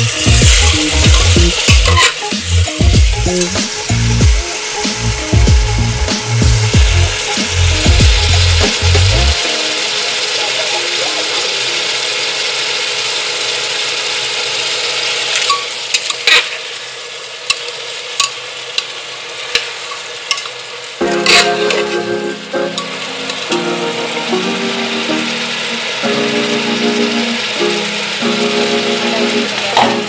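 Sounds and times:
background music: 0:00.0 - 0:11.8, 0:21.0 - 0:30.0
chickpeas sizzling in a pot: 0:00.0 - 0:30.0
metal spatula scraping a pot: 0:01.1 - 0:02.3.

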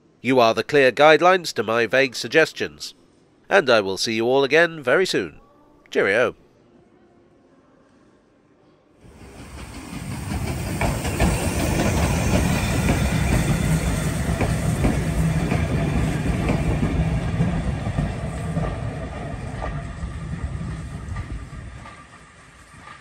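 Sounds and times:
steam hiss: 0:09.0 - 0:16.3
train wheels rumbling and clicking: 0:09.1 - 0:23.0.

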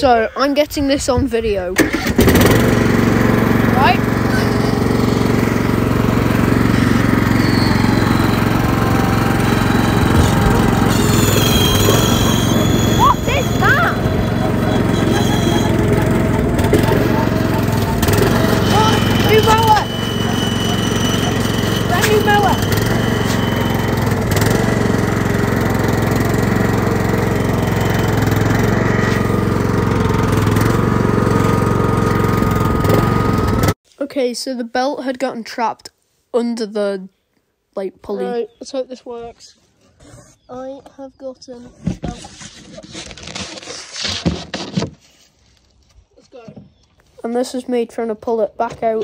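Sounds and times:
lawnmower engine running: 0:01.8 - 0:33.8
high-pitched belt squeal: 0:06.6 - 0:25.3.

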